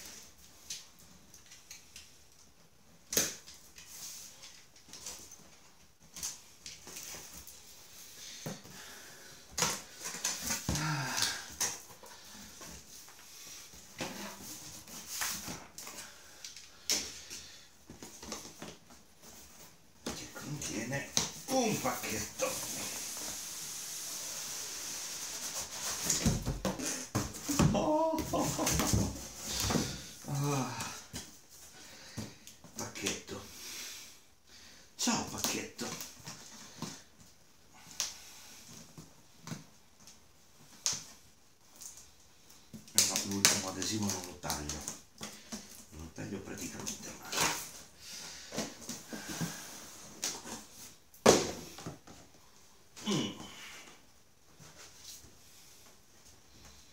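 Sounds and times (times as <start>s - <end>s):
cardboard rustling and scraping: 21.4s - 30.2s.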